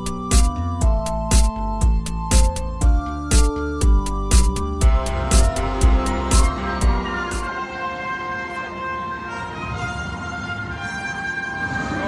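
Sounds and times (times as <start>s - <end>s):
steady drum beat: 0.0s - 7.5s
electronic keyboard notes: 0.0s - 12.0s.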